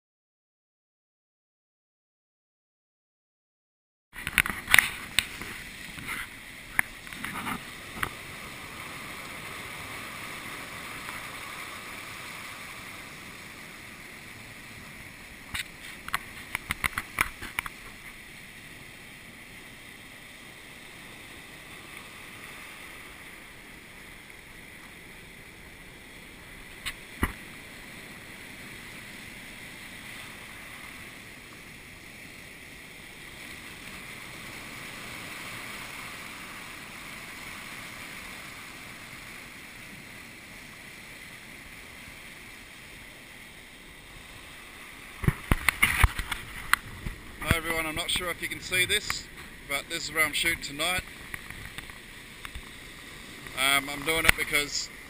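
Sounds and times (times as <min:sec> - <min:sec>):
surf washing over rocks: 0:04.2 - 0:55.0
sharp clicks and knocks: 0:15.6 - 0:17.8.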